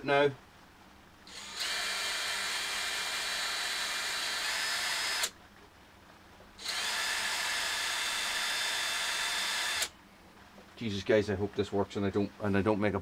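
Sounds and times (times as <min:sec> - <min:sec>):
cordless drill drilling: 0:01.3 - 0:05.4, 0:06.6 - 0:09.9.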